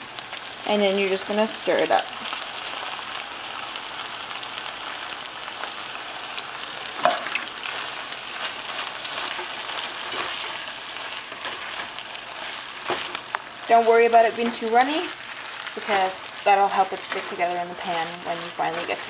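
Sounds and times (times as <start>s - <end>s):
food sizzling in a frying pan: 0.0s - 19.0s
spatula stirring: 7.1s - 19.0s.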